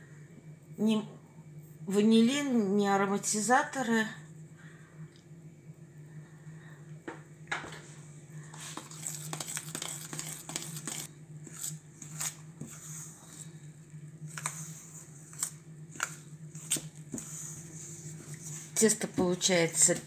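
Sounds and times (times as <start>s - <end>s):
steady low hum: 0.0s - 20.0s
spoon scraping dough in metal bowl: 8.6s - 13.6s.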